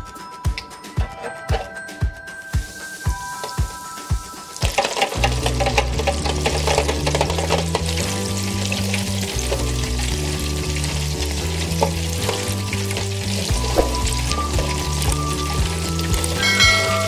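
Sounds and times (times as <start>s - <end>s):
background music with bass: 0.0s - 17.0s
food sizzling in deep fryer: 2.4s - 17.0s
tongs clicking: 4.6s - 10.1s.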